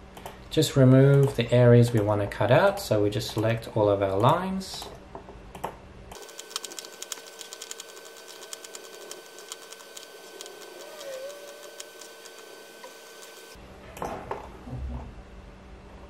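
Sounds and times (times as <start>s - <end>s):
faint electrical hum: 0.0s - 16.0s
computer mouse clicking: 5.6s - 13.6s.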